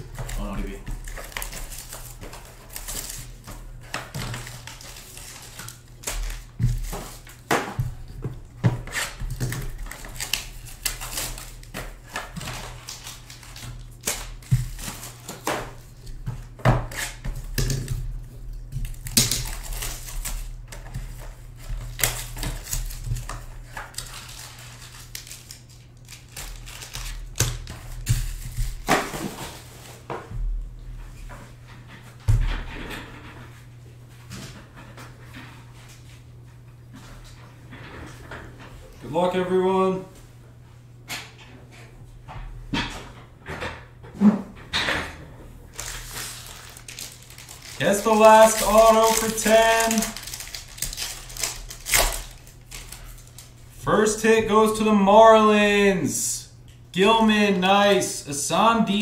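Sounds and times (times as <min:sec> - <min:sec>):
packaging rustling: 0:00.0 - 0:08.1, 0:18.8 - 0:29.9, 0:45.7 - 0:53.8
foil packs crinkling: 0:00.0 - 0:08.2, 0:08.8 - 0:16.2, 0:16.9 - 0:29.8, 0:45.7 - 0:53.9
low steady hum: 0:00.0 - 0:59.0.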